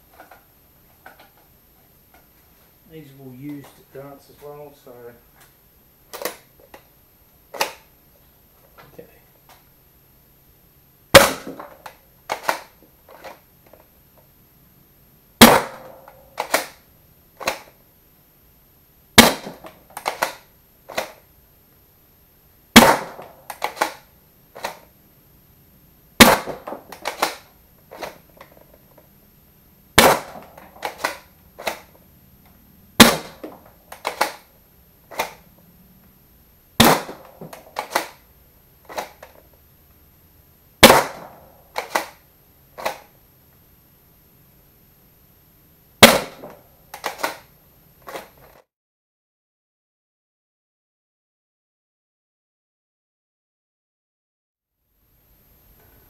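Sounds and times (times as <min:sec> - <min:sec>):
foam dart blaster firing: 0:11.1 - 0:13.3, 0:15.4 - 0:16.8, 0:19.2 - 0:21.2, 0:22.7 - 0:24.8, 0:26.2 - 0:28.4, 0:30.0 - 0:32.0, 0:33.0 - 0:34.5, 0:36.8 - 0:38.2, 0:40.8 - 0:42.2, 0:46.0 - 0:47.5.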